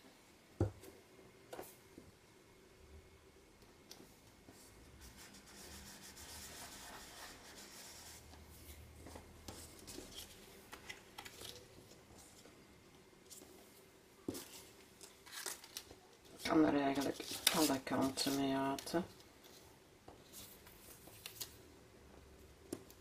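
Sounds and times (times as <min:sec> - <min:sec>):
paper rustles and ticks: 0:14.4 - 0:19.6.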